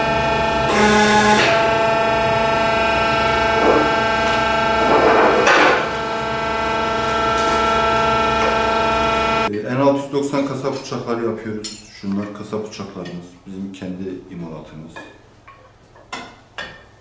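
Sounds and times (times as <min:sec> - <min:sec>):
hydraulic press humming: 0:00.0 - 0:09.5.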